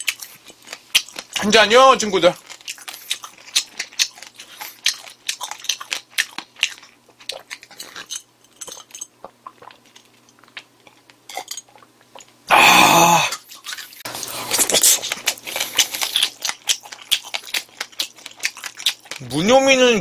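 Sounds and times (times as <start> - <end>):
man gulping and swallowing: 9.2 - 13.5.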